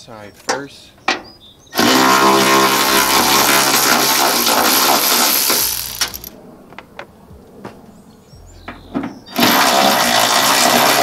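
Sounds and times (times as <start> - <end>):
electric ratchet motor running: 1.8 - 6.3, 9.4 - 11.0
sharp clicks: 5.4 - 6.3.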